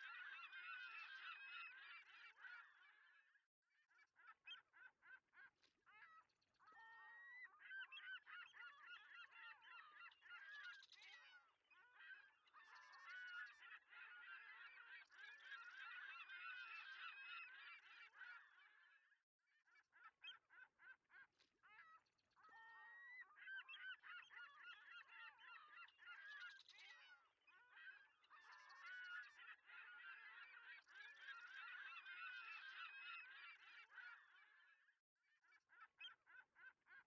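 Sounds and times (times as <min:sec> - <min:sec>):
chorus of birds calling: 0:00.0 - 0:03.1, 0:06.7 - 0:18.9, 0:21.7 - 0:34.7.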